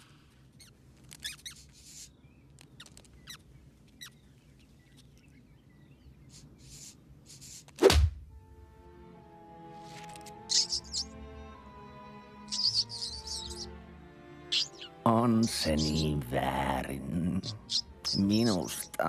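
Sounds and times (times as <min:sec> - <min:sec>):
cartoon mouse pattering: 0:00.6 - 0:03.4, 0:09.9 - 0:11.1, 0:12.5 - 0:13.7
cartoon mouse squeaking: 0:00.6 - 0:03.4, 0:10.5 - 0:11.1, 0:12.5 - 0:13.7, 0:14.5 - 0:15.0, 0:17.4 - 0:19.0
loud thud: 0:07.9 - 0:08.2.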